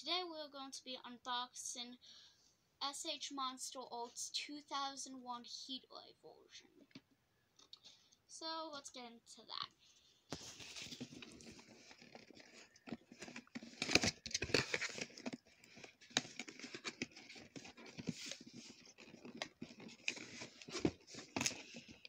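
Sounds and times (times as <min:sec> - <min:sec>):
cardboard box rustling and tearing: 0:10.4 - 0:22.0.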